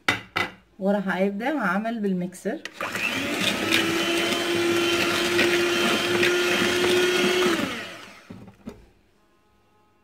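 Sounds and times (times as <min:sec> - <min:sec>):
electric hand mixer whirring: 0:02.7 - 0:08.4.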